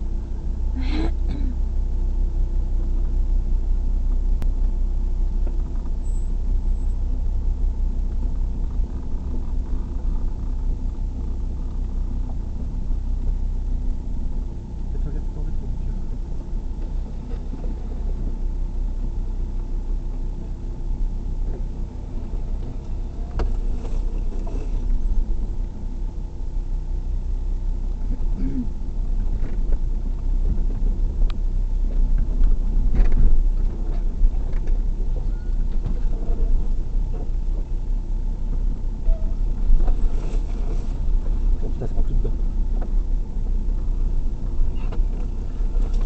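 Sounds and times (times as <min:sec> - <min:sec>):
low engine drone and rumble: 0:00.0 - 0:46.0
knocks and rattles over bumps: 0:29.1 - 0:37.8.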